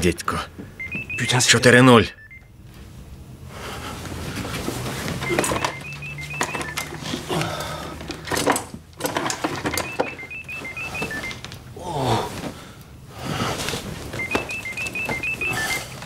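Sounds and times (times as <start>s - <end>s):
phone ringtone beeps: 0.8s - 2.5s, 5.2s - 7.1s, 9.3s - 11.4s, 14.2s - 16.0s
bedclothes rustling: 2.7s - 16.0s.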